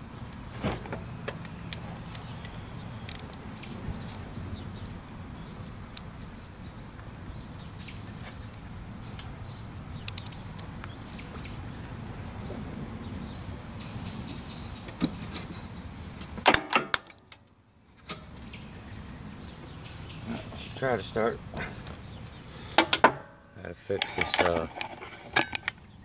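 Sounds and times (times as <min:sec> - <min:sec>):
light clicks: 0:10.0 - 0:11.0
loud sharp clicks and knocks: 0:16.2 - 0:17.5, 0:22.7 - 0:23.3.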